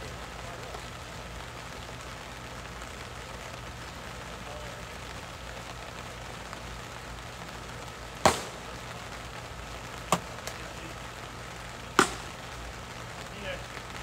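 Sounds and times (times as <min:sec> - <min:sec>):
steady outdoor hiss: 0:00.0 - 0:14.0
sharp knocks: 0:12.0 - 0:12.3.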